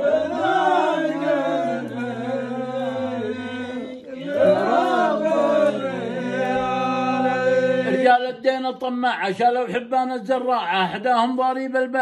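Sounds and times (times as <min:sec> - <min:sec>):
man chanting: 0:06.0 - 0:12.0.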